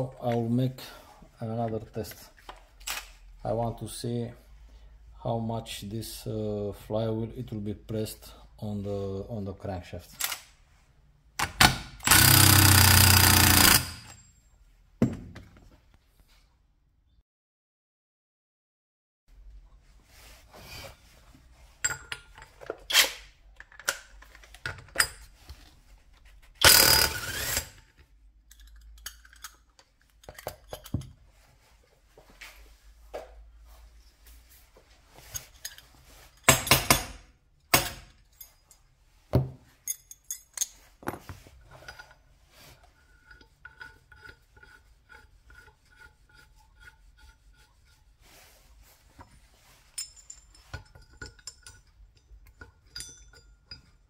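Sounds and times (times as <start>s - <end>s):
tools scraping and knocking: 21.7s - 27.0s, 27.9s - 31.7s, 32.3s - 54.0s.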